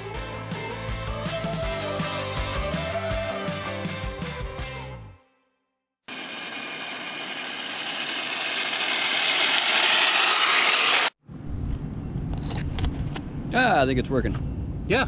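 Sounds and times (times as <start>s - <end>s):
toy truck drivetrain whirring: 6.1s - 11.2s.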